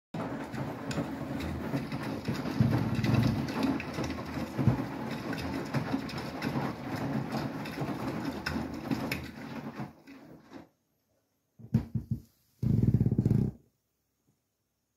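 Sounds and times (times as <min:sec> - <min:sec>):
washing machine drum turning: 0:00.2 - 0:10.7
water sloshing and splashing: 0:00.2 - 0:10.8.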